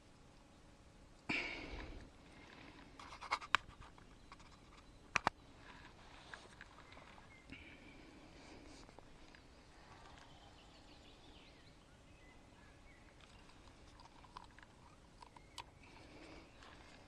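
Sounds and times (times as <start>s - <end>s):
faint bird chirps: 4.0s - 17.0s.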